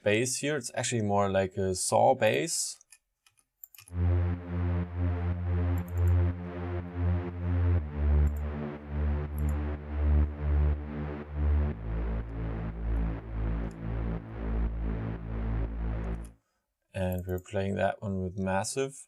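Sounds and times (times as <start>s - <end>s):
deep saw bass synth: 3.8s - 16.4s.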